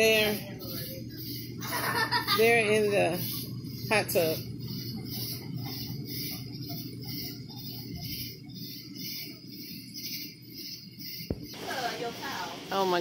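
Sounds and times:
crickets chirping: 0.0s - 12.1s
hot tub jets bubbling: 11.3s - 13.0s.

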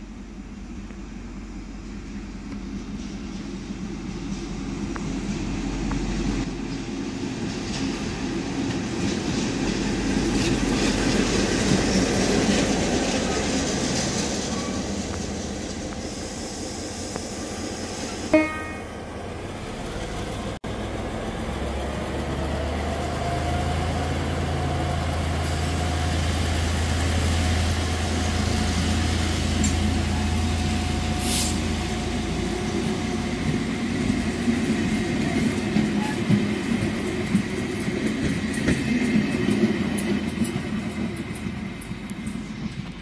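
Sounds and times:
train wheels clicking over rails: 2.5s - 18.3s, 23.9s - 43.0s
diesel engine drone: 14.9s - 35.0s
short hiss: 31.2s - 31.6s.

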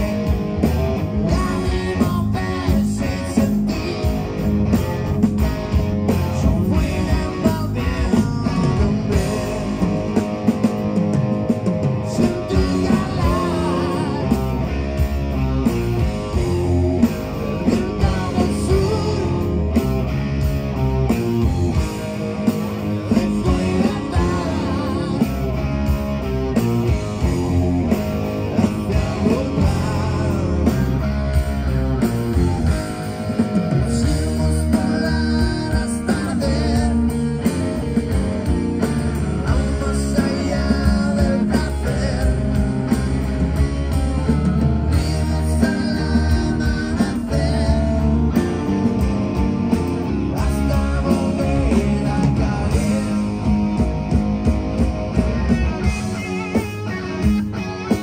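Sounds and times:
rock band playing live: 0.0s - 58.0s
lead vocal singing: 1.2s - 4.4s, 6.2s - 10.2s, 11.9s - 15.0s, 17.4s - 20.2s, 22.7s - 25.9s, 26.9s - 31.8s, 33.7s - 38.1s, 38.8s - 43.5s, 44.8s - 49.0s, 50.1s - 54.1s.

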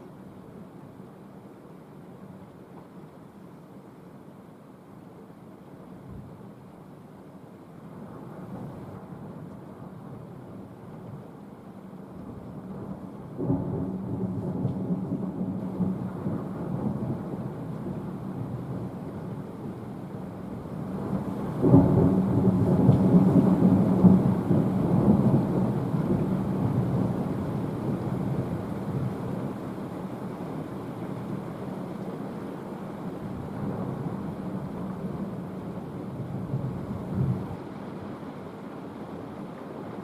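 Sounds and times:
thunder rumbling: 12.8s - 19.9s, 20.5s - 29.7s.

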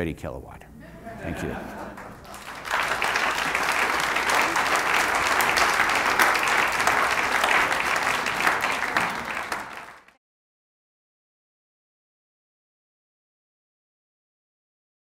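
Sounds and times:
audience applauding: 1.3s - 10.2s.

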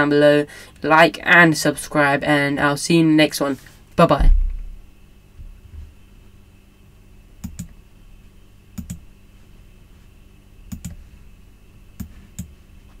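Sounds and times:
faint steady hum: 0.0s - 13.0s
computer mouse clicks: 7.4s - 7.7s, 8.8s - 9.0s, 10.7s - 11.0s, 12.0s - 12.5s.

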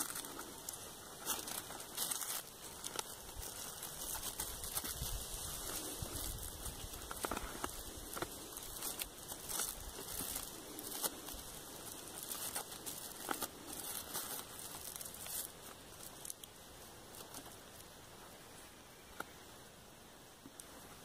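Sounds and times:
plastic tape crinkling: 0.0s - 17.8s.

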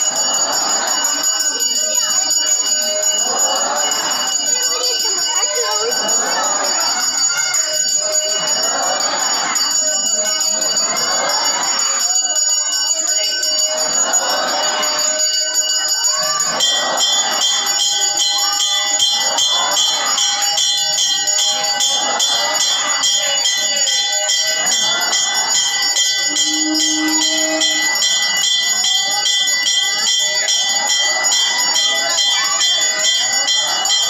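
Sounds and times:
temple bells ringing rapidly: 0.0s - 34.0s
devotional voices or music: 24.0s - 30.2s.

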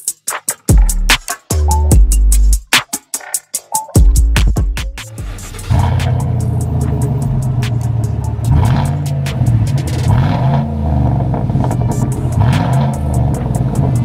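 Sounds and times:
electronic music with drum beat: 0.0s - 14.0s
heavy bass: 0.7s - 2.9s, 3.9s - 14.0s.

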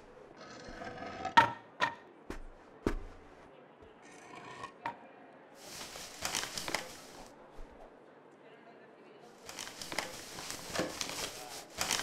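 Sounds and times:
knocks and footfalls on wood: 2.3s - 3.4s
scraping and rubbing: 9.5s - 12.0s.

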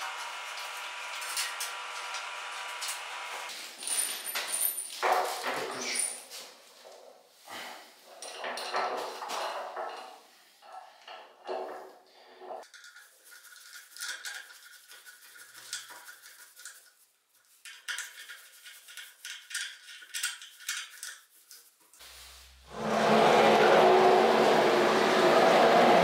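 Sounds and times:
hex key clicking and scraping in screws: 17.7s - 21.2s.

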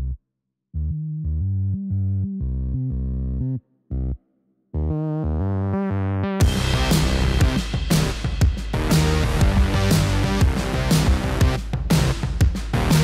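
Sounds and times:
synthesizer bass line: 0.8s - 4.2s, 4.8s - 13.0s.

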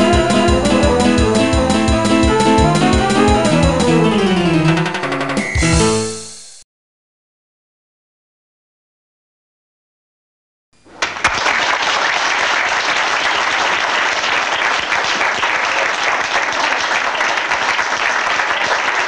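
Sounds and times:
audience applause: 11.0s - 19.0s.

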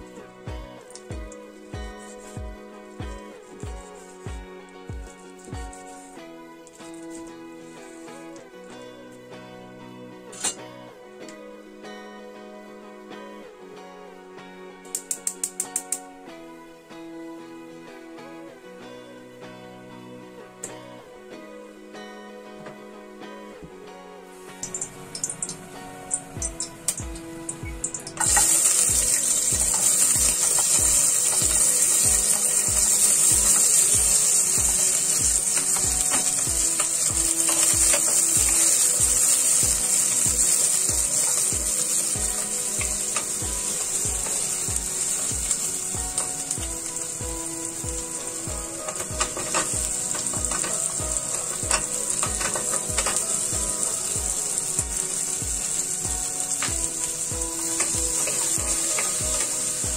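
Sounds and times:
onion sizzling in hot oil: 24.3s - 59.9s.

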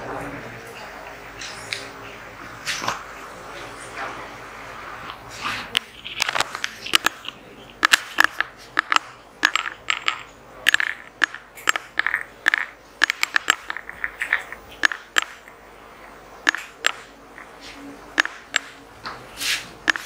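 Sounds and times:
small hard objects clinking: 5.9s - 15.4s.

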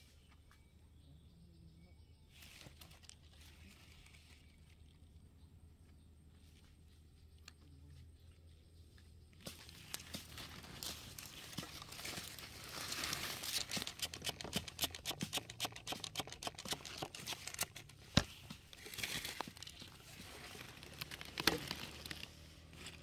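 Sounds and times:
leaves and gravel rustling: 2.3s - 5.3s, 9.4s - 14.9s, 16.6s - 23.0s.

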